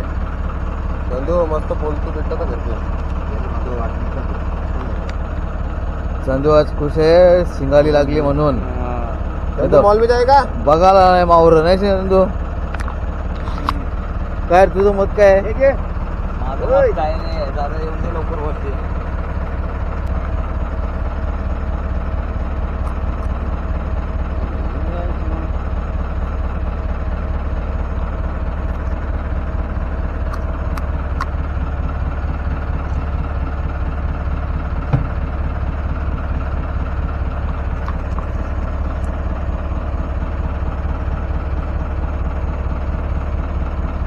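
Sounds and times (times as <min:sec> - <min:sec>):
boat engine idling: 0:00.0 - 0:44.0
sharp knock: 0:34.9 - 0:35.3.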